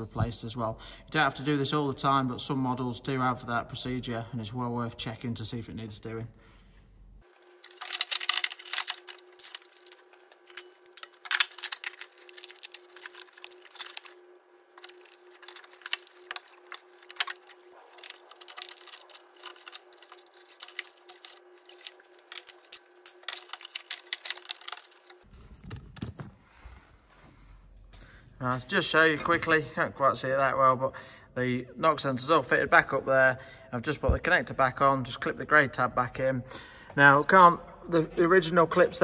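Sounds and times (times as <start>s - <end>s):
faint steady hum: 0.0s - 35.4s
light clicks and rattles of wiring: 7.6s - 26.2s.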